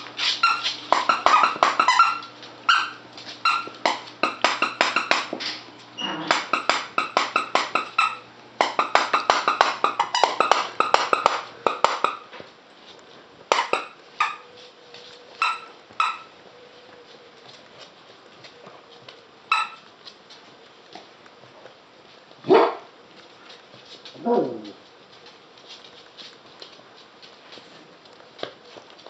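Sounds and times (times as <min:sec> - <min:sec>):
squeaky dog toy squeaking: 0:00.2 - 0:05.3, 0:06.0 - 0:12.3, 0:13.5 - 0:14.5, 0:15.4 - 0:16.3, 0:19.5 - 0:19.8.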